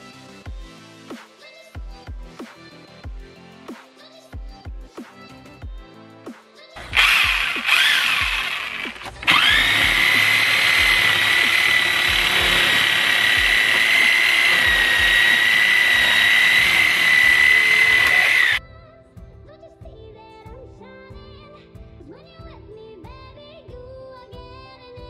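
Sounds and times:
reciprocating saw cutting pipe: 6.8 - 18.6.

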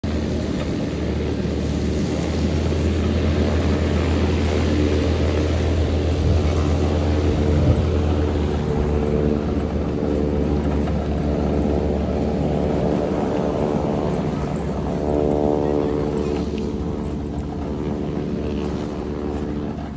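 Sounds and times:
propeller plane engine running: 0.0 - 19.9.

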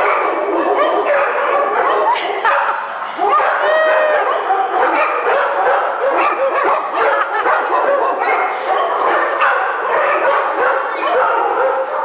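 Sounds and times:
dogs barking and yipping: 0.0 - 12.0.

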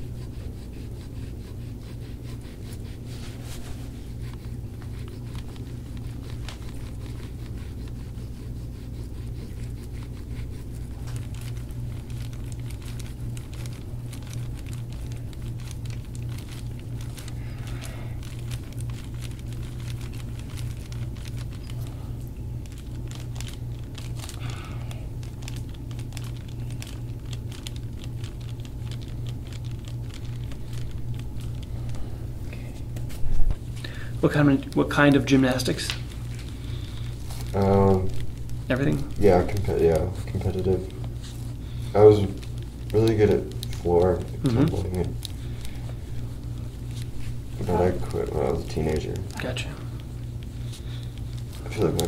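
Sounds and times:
hands sliding over oiled skin: 0.0 - 11.2
steady low hum: 0.0 - 52.0.

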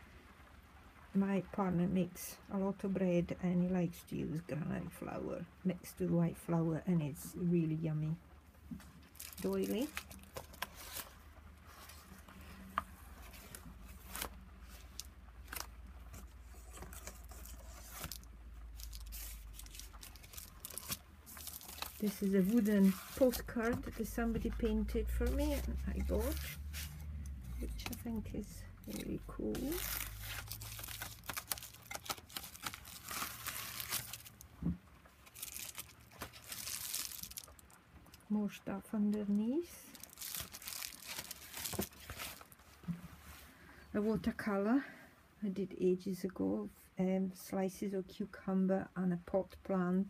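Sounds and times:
pages rustling and crinkling: 8.7 - 37.8, 39.9 - 43.5
sharp crackles: 8.9 - 11.2, 16.6 - 38.3, 39.9 - 42.6.

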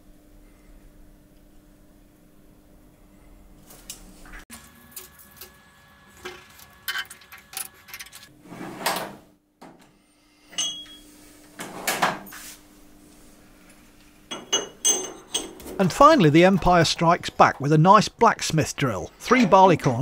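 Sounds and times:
faint steady hum: 0.0 - 4.4
metal tools clinking: 6.5 - 8.3, 14.3 - 16.0.

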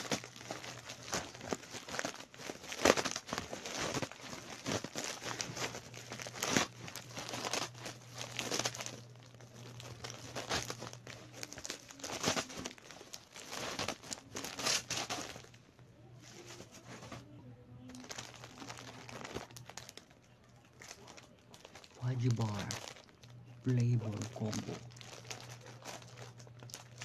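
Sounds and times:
bubble wrap crackling: 0.0 - 27.0.

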